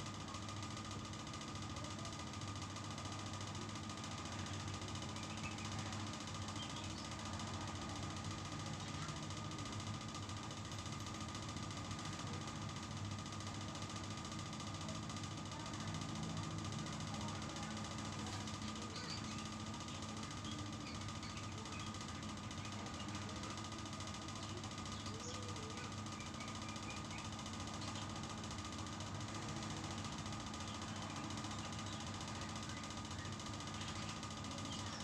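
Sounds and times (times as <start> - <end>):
faint high chirps: 16.5 - 28.5.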